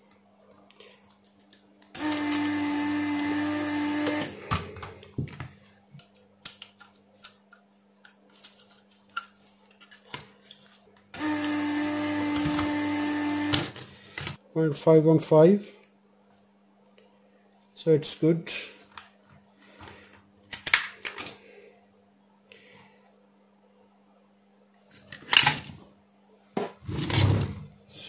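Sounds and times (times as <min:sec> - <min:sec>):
desoldering vacuum pump running: 0:01.9 - 0:05.0, 0:11.2 - 0:14.4.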